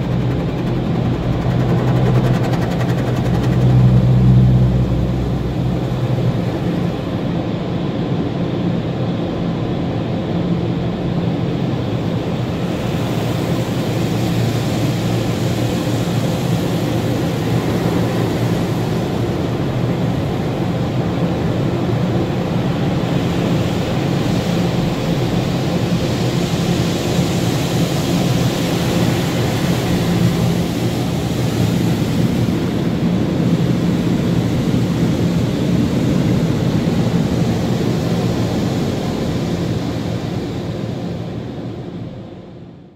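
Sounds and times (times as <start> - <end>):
low steady hum: 0.0 - 8.4.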